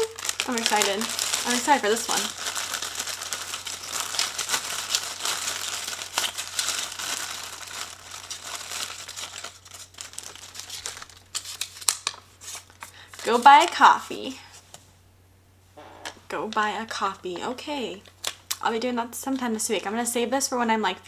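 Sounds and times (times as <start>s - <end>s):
paper slip crackling: 0.0s - 13.9s
plastic bag crinkling: 0.0s - 14.0s.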